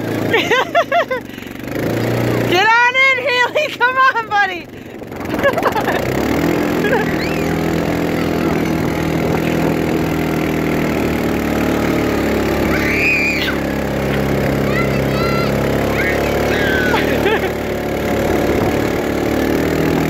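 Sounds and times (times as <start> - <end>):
quad bike engine running: 0.0 - 20.0
children shrieking: 6.7 - 9.1, 12.2 - 17.7.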